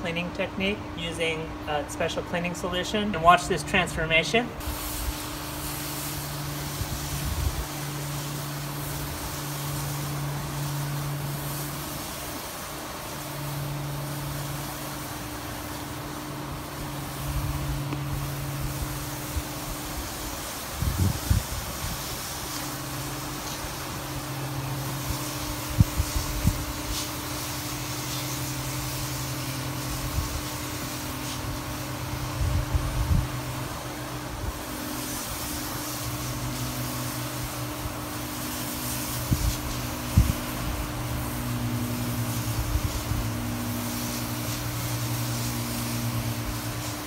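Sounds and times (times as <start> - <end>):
motor humming: 3.7 - 47.0
light hiss: 4.6 - 47.0.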